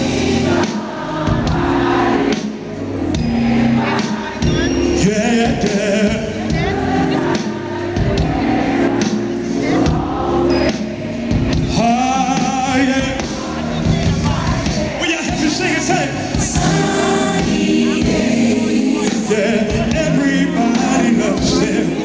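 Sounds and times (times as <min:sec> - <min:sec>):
audience singing along: 0:00.0 - 0:22.0
live band playing: 0:00.0 - 0:22.0.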